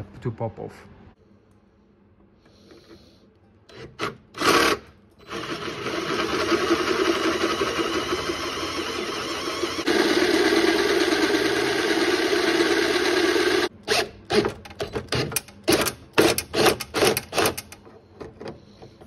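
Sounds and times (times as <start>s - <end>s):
electric drill whirring: 4.0s - 14.4s.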